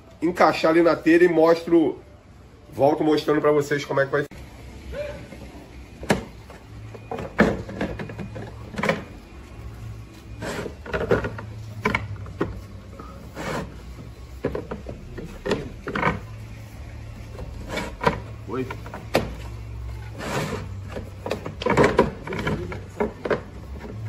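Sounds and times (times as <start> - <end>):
plastic pipe knocking and scraping: 13.3 - 16.4, 20.2 - 24.0.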